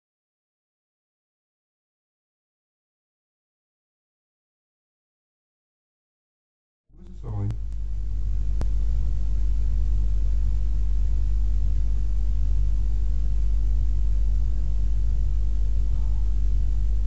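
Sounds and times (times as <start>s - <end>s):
steady low hum: 6.9s - 17.0s.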